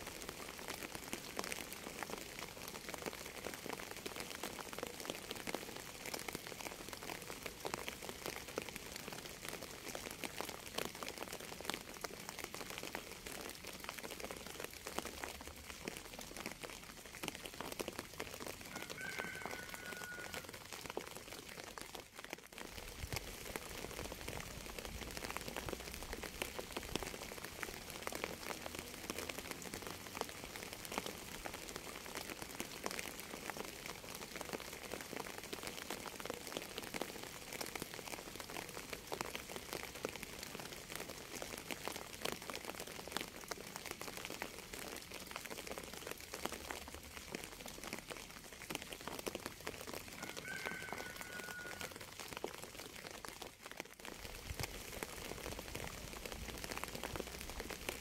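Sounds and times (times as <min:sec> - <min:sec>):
steady rain patter: 0:00.0 - 0:58.0.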